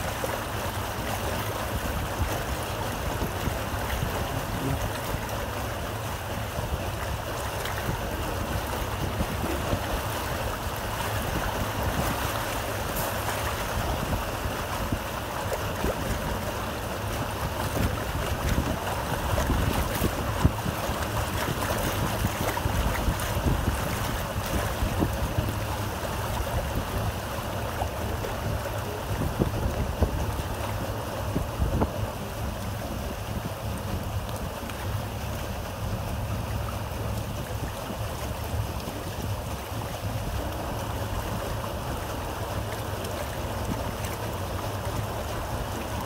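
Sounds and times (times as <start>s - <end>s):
deep engine rumble: 0.0s - 46.0s
river water rushing and splashing: 0.0s - 46.0s
wind buffeting microphone: 0.0s - 46.0s.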